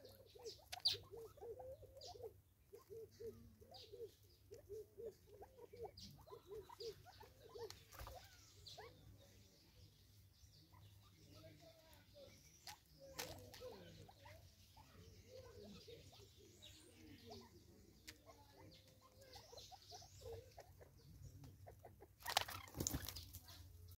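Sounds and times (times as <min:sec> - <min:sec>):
soft low bird calls: 0:00.0 - 0:24.0
wing flapping: 0:22.2 - 0:23.5.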